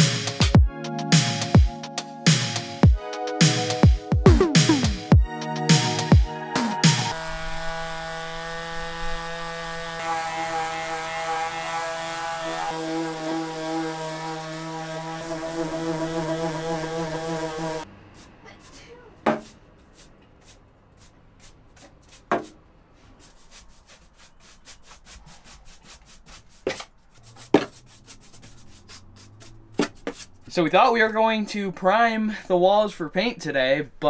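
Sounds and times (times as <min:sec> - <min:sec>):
electric palm sander running: 0:07.1 - 0:17.9
hand sanding with sandpaper: 0:07.1 - 0:30.4.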